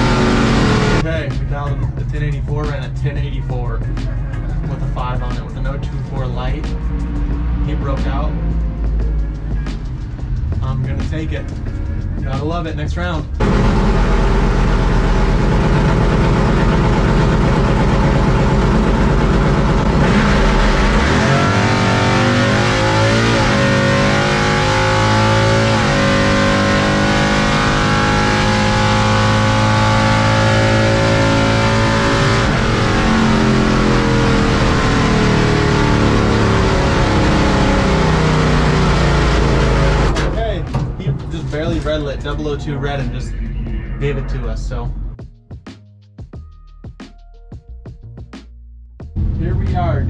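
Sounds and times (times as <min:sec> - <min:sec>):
truck engine revving: 0:00.0 - 0:45.2.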